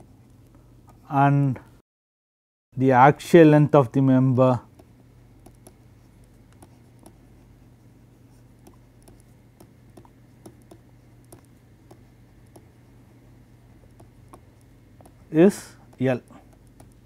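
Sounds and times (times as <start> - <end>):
steady low hum: 2.8 - 17.0
stylus clicking on a tablet: 4.7 - 7.2, 8.6 - 12.8, 13.8 - 15.2, 15.9 - 17.0.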